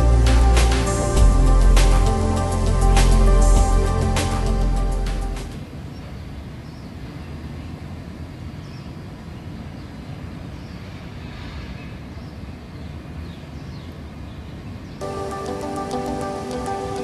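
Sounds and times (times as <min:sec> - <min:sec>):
low outdoor rumble: 0:00.0 - 0:10.4.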